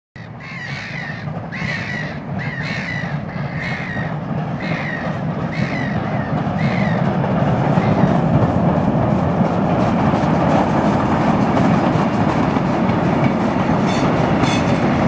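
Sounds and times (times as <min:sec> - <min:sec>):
crow cawing: 0:00.2 - 0:07.0
steam locomotive rumble: 0:00.2 - 0:15.0.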